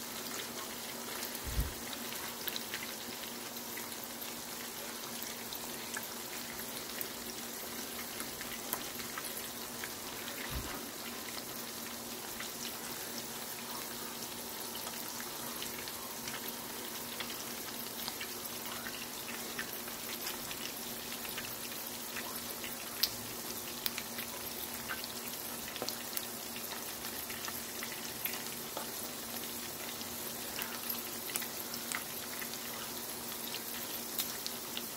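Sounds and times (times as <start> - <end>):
meat sizzling in a skillet: 0.0 - 34.9.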